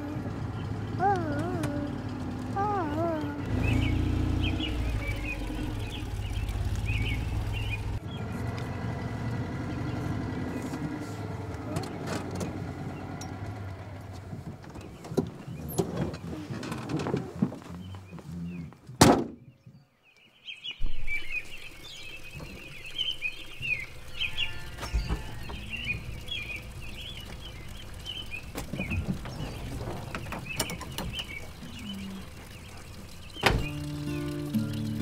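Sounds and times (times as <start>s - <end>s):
small birds chirping: 0.0s - 12.1s, 17.4s - 35.0s
low steady rumble: 0.0s - 15.7s, 20.9s - 35.0s.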